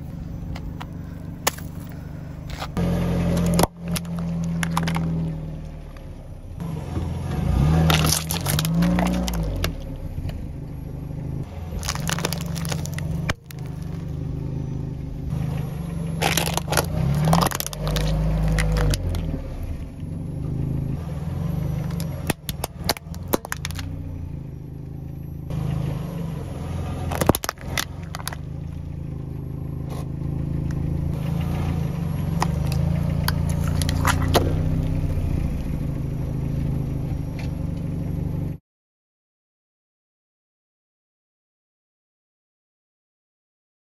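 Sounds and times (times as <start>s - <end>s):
car engine humming: 0.0s - 38.6s
tyre crushing plastic objects: 3.4s - 5.2s, 7.8s - 9.8s, 11.7s - 14.0s, 16.2s - 19.3s, 21.8s - 23.9s, 27.1s - 28.4s, 32.4s - 34.5s.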